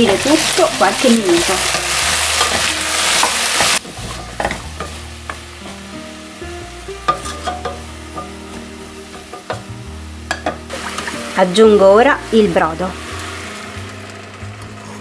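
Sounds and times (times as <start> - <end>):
vegetables sizzling in oil: 0.0 - 15.0
wooden spoon knocking on pot: 7.1 - 10.7.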